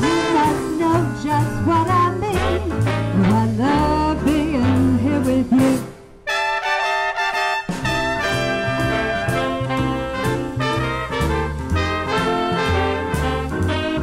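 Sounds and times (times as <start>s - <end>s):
woman singing into microphone: 0.0s - 5.9s
brass swing accompaniment: 0.0s - 14.0s.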